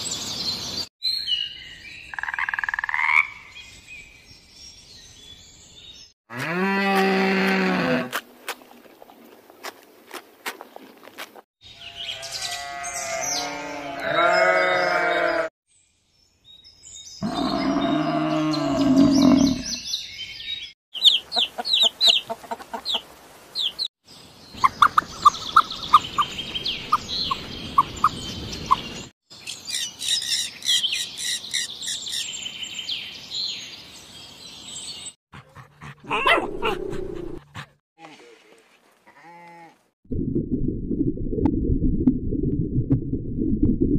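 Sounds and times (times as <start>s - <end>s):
drawn-out pitched animal call: 11.8s - 15.5s
small birds chirping: 14.2s - 36.4s
budgerigars chattering: 21.0s - 23.0s, 24.6s - 29.0s.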